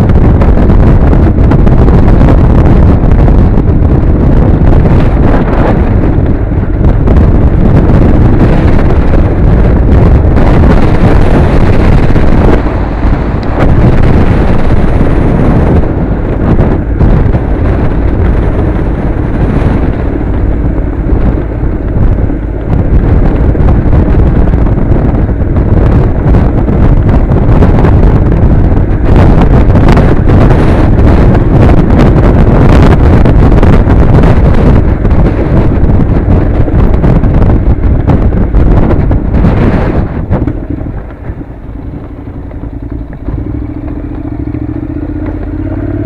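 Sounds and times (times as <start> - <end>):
motorcycle engine running: 0.0 - 46.0
wind buffeting microphone: 0.0 - 46.0.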